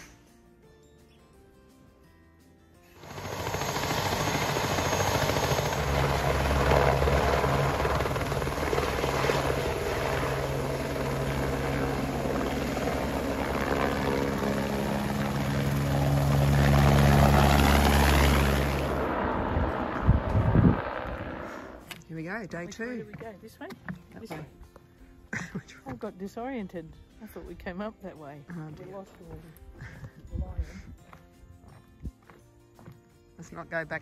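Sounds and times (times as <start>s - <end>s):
turbine whine: 3.0s - 22.0s
helicopter rotor beat: 3.0s - 23.5s.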